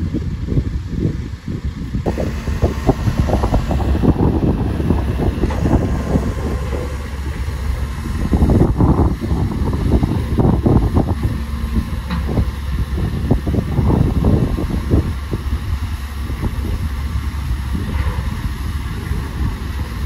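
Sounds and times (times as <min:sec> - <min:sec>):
bulldozer diesel engine rumbling: 0:00.0 - 0:20.0
wind buffeting microphone: 0:00.0 - 0:20.0
dense irregular rattling: 0:02.1 - 0:15.8.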